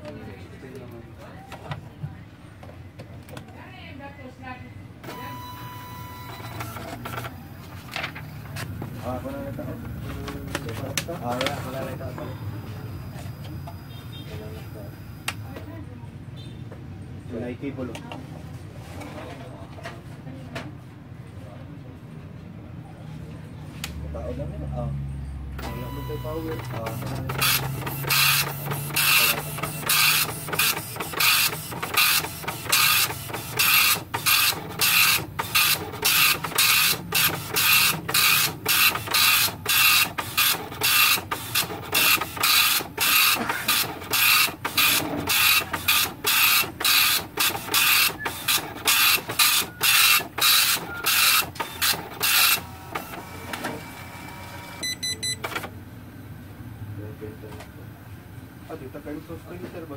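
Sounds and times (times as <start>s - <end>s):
dot-matrix printer printing: 5.0s - 15.7s, 25.6s - 55.8s.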